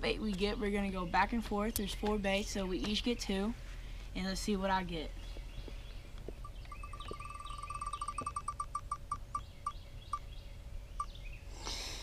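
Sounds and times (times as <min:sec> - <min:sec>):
birds chirping faintly: 0:00.0 - 0:12.0
app wheel ticking: 0:06.7 - 0:10.2.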